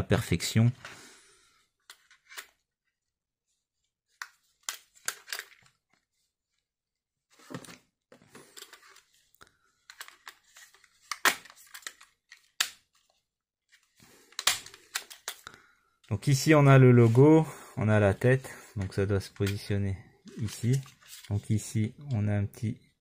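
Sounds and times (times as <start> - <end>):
plastic parts clicking: 4.2 - 5.7, 9.8 - 12.8, 14.3 - 15.5
paper rustling: 18.1 - 21.9.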